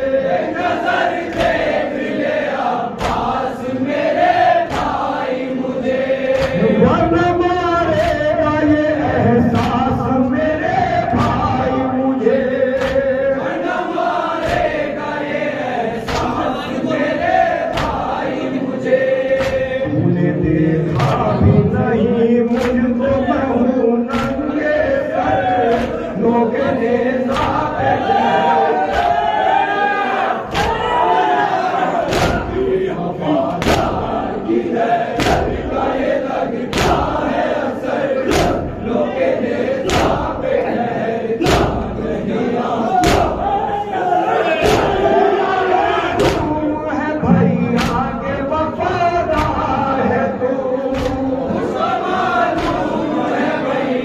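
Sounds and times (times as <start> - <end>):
men chanting into microphones: 0.0 - 54.0
men slapping chests in unison: 0.1 - 19.9, 20.5 - 21.6, 22.4 - 43.8, 44.5 - 46.8, 47.4 - 48.6, 49.2 - 50.1, 50.8 - 53.6
chest beating slaps: 3.0 - 3.4, 4.6 - 5.2, 6.2 - 7.0, 9.5 - 9.9, 11.0 - 11.7, 12.7 - 13.4, 14.4 - 14.8, 16.0 - 16.6, 17.3 - 18.2, 19.3 - 19.8, 20.9 - 21.4, 22.5 - 23.0, 24.1 - 24.5, 25.6 - 26.1, 27.3 - 27.8, 28.8 - 29.4, 30.4 - 31.0, 32.0 - 32.7, 33.5 - 34.2, 35.1 - 35.8, 36.7 - 37.4, 38.2 - 38.9, 39.8 - 40.4, 41.4 - 42.0, 42.9 - 43.6, 44.6 - 45.2, 46.1 - 46.6, 47.6 - 48.4, 49.3 - 49.8, 50.9 - 51.6, 52.5 - 53.1.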